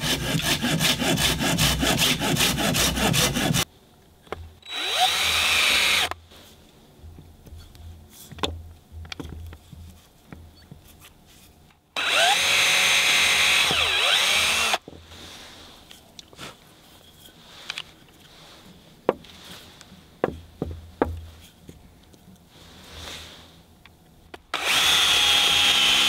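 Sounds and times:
power drill drilling into wood: 4.7s - 6.2s, 12.0s - 14.8s, 24.5s - 26.0s.

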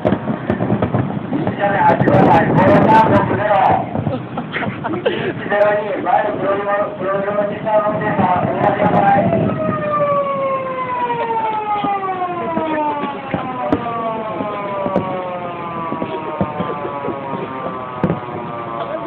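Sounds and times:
police siren wail: 0.1s - 4.1s, 5.4s - 19.0s.

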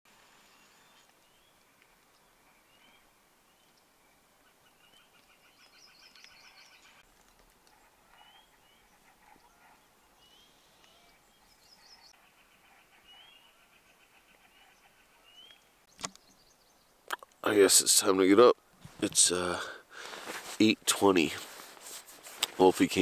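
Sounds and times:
birds chirping and trilling: 0.4s - 7.0s, 7.6s - 18.3s.

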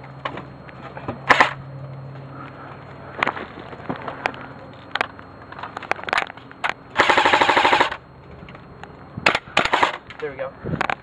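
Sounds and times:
airsoft rifle automatic burst: 7.0s - 8.0s, 9.6s - 10.0s.

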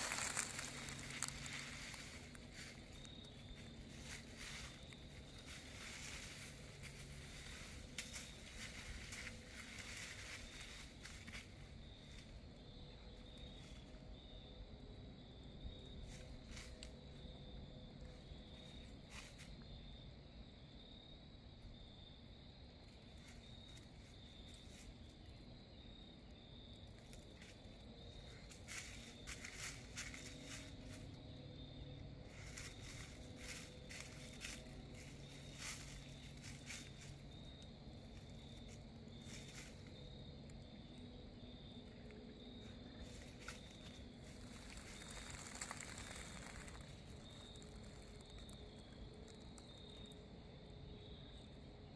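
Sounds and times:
dog paws crunching dry leaves: 0.0s - 11.3s, 43.0s - 48.6s.

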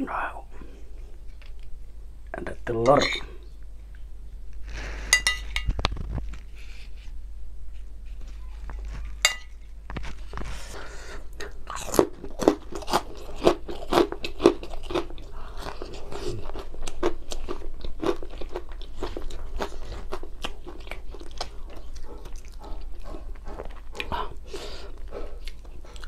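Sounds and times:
wet chewing and smacking: 11.3s - 26.0s.

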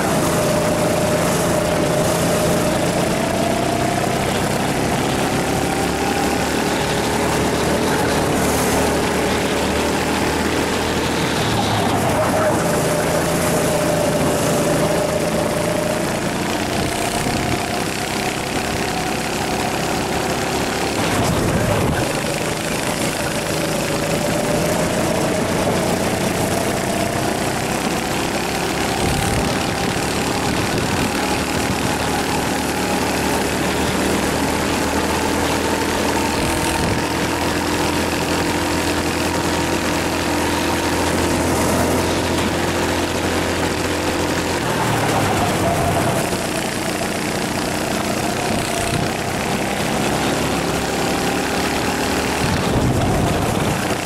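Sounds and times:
go-kart engine under load: 0.0s - 54.0s.

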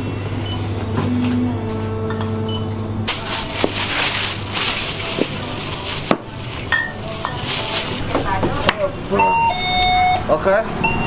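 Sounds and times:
plastic bag rustling: 3.1s - 8.7s.

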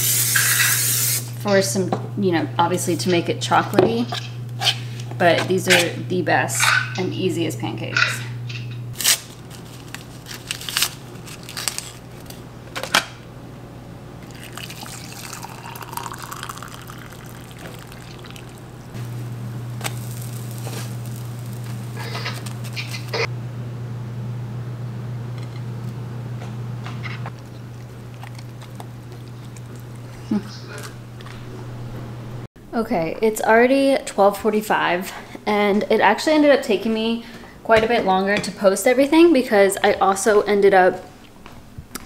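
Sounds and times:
steady low hum: 1.1s - 33.7s
packet tearing open: 9.0s - 12.3s, 19.8s - 23.2s
liquid pouring: 14.2s - 19.0s
pancakes cooking in a frying pan: 19.1s - 23.0s.

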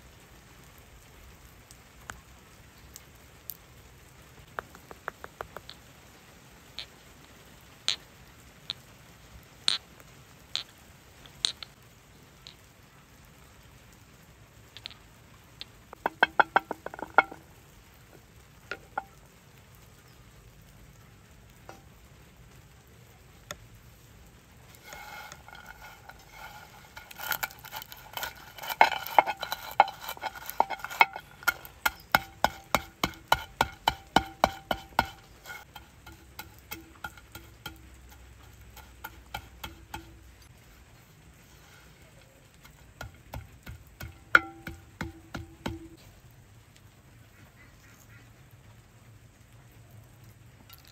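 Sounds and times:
stone crushing nuts in clay bowl: 15.9s - 17.5s, 24.7s - 40.5s, 41.6s - 46.0s
pestle tapping in stone mortar: 16.0s - 17.5s, 24.8s - 40.3s, 42.5s - 46.0s.

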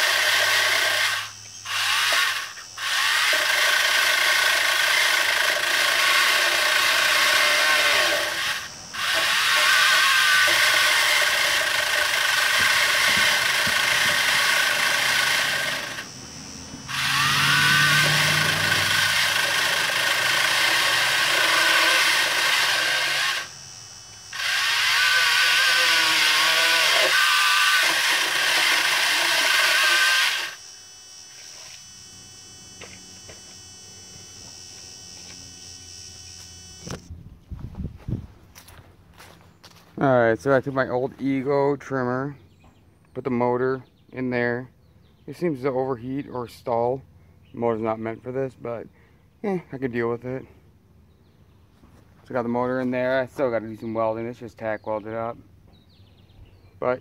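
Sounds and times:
pole saw running: 0.0s - 37.1s.

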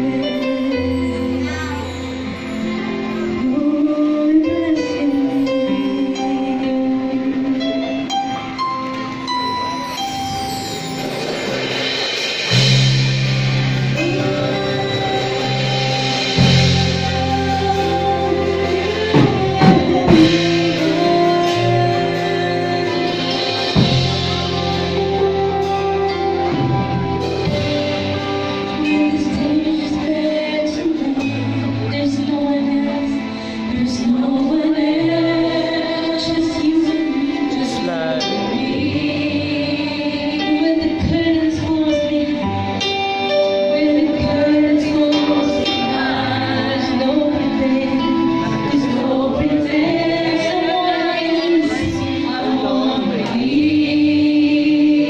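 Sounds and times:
woman singing lead: 0.0s - 10.0s, 13.8s - 55.0s
band with electric guitars and bass: 0.0s - 55.0s.

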